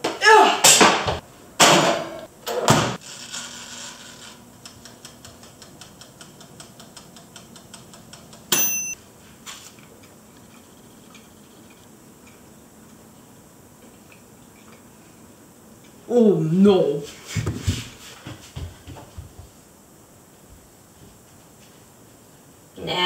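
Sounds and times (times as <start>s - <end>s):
mechanical timer ticking: 4.6s - 9.0s
timer clunk and ding: 8.5s - 9.0s.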